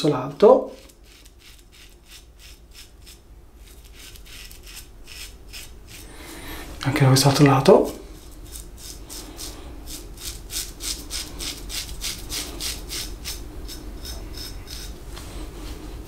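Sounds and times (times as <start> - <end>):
razor cutting beard stubble: 0.6 - 6.1, 7.7 - 15.0.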